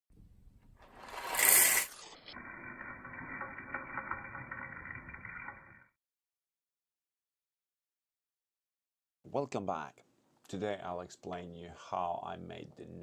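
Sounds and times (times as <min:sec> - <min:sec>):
coffee beans pouring: 0:00.8 - 0:05.9
coffee grinder motor running: 0:00.9 - 0:04.7.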